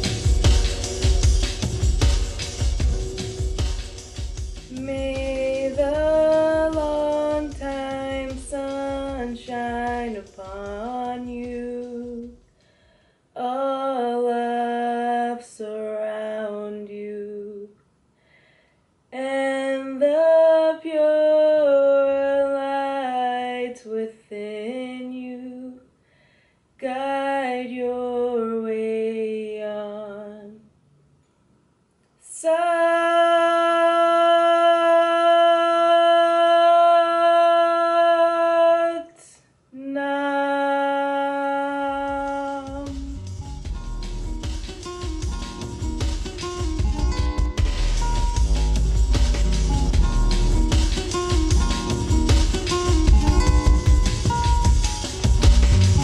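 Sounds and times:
low beat: 0.0 - 12.3, 42.2 - 56.0
woman singing a mantra: 4.7 - 12.4, 13.4 - 17.7, 19.2 - 25.8, 26.8 - 30.7, 32.2 - 43.2.

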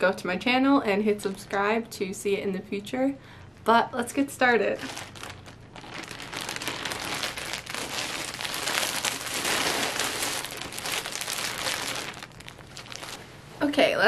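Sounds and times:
plastic bags crinkling: 4.6 - 13.3.

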